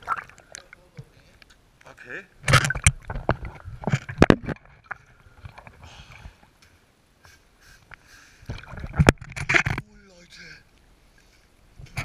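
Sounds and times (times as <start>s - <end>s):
water sloshing and gurgling: 0.0s - 7.0s, 7.8s - 9.8s.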